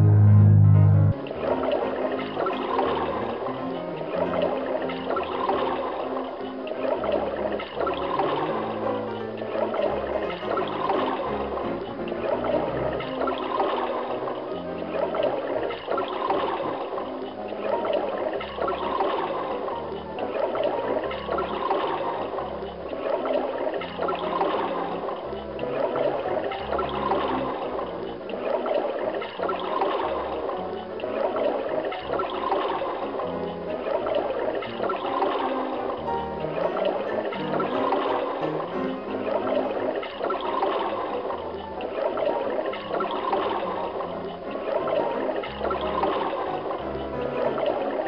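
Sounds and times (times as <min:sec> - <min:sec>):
low bass line: 0:00.0 - 0:01.2
background music low notes: 0:00.0 - 0:48.0
rushing bubbling water: 0:01.1 - 0:48.0.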